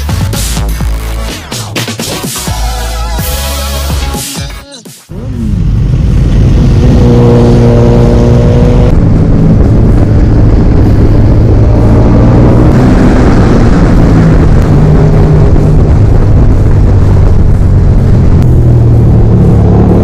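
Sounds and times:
motorcycle engine running hard: 5.1 - 20.0
wind rushing: 5.5 - 20.0.

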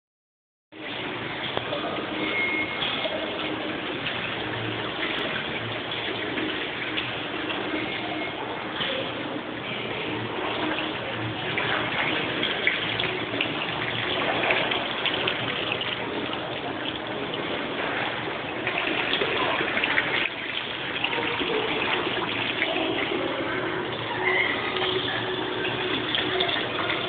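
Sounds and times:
fountain water splashing: 9.7 - 27.0.

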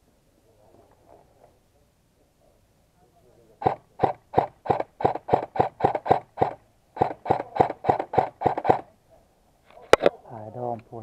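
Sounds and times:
airsoft rifle shots: 3.6 - 8.9.

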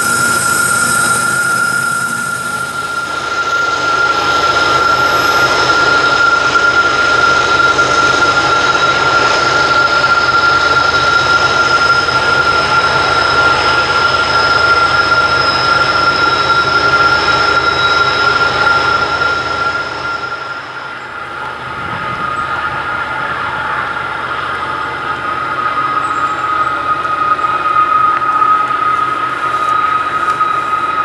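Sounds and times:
diesel locomotives running: 0.0 - 31.0
train wheels squealing: 0.0 - 31.0.

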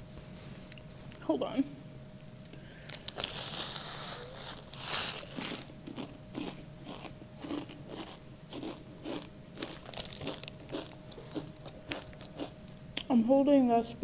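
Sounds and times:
crunchy chewing: 2.4 - 12.8
chip crumbs rustling from bag: 2.8 - 12.5.

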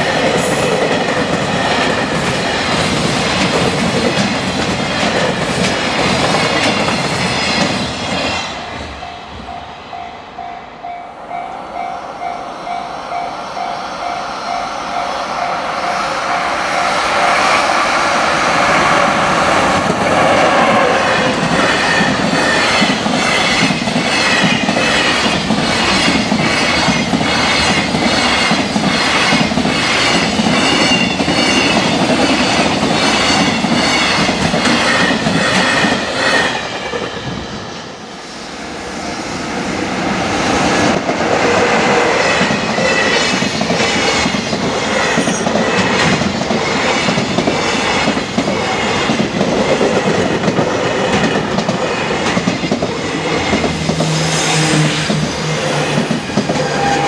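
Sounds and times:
heavy train rumble: 0.0 - 57.0
crossing warning bell ringing: 8.5 - 18.8, 55.4 - 57.0.

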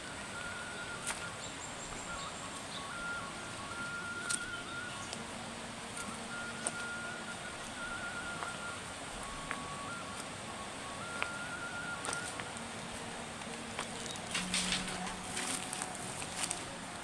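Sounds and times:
two-pitch whistling tone: 0.0 - 5.1, 5.9 - 12.5
shallow river rushing over rocks: 0.0 - 17.0.

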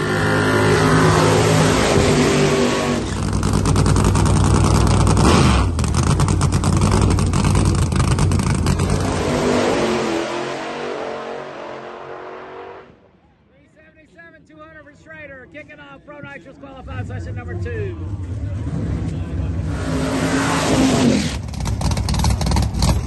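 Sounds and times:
drag car engine at full revs: 0.0 - 12.9, 18.1 - 23.0.

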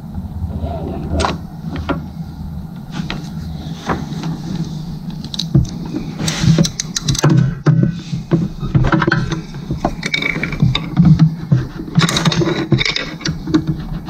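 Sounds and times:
steady low hum: 0.0 - 14.0
hand tools clicking on metal: 5.2 - 7.8.

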